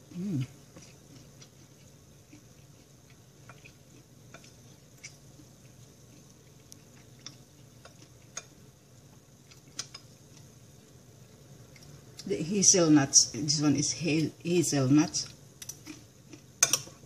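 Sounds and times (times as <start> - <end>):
person chewing: 0.0 - 10.7, 15.3 - 17.0.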